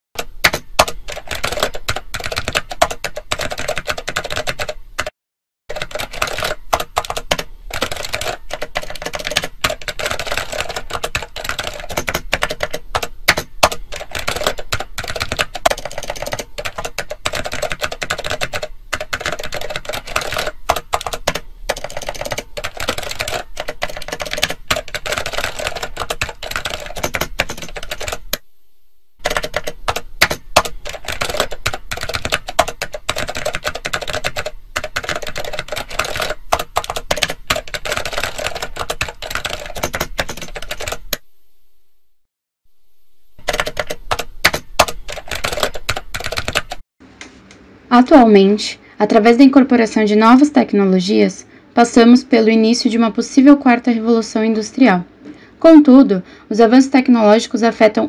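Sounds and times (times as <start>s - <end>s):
keyboard typing clicks: 0.2s - 5.1s, 5.7s - 28.4s, 29.2s - 41.2s, 43.4s - 46.8s.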